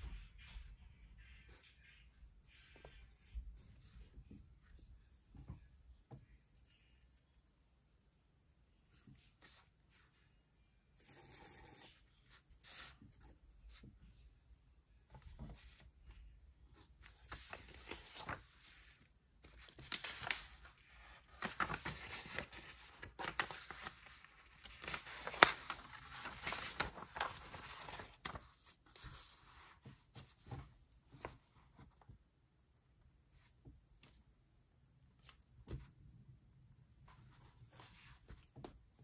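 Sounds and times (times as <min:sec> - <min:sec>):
pen scratching on paper: 0:11.0 - 0:12.0
paper sheets handled: 0:16.7 - 0:31.9.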